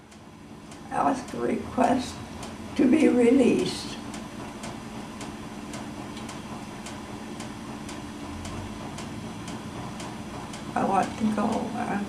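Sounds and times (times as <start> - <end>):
clock ticking: 0.0 - 12.0
low room hum: 0.0 - 12.0.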